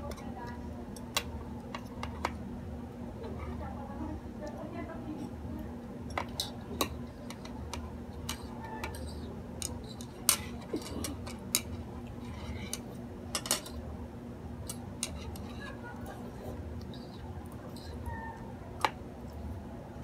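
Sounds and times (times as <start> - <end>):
chopsticks tapping ceramic plate: 6.1 - 13.8, 14.6 - 15.8.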